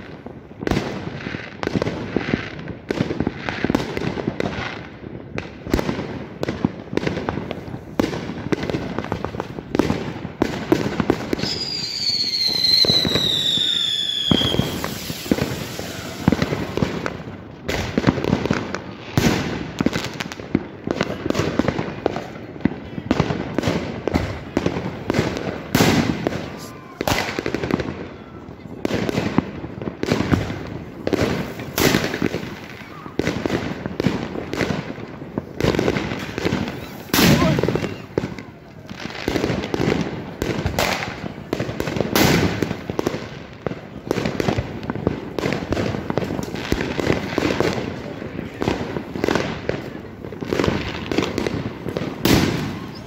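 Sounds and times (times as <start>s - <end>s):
fireworks bangs and pops: 0.0s - 53.0s
falling firework whistle: 11.3s - 17.2s, 25.8s - 28.6s, 36.2s - 38.5s, 51.2s - 53.0s.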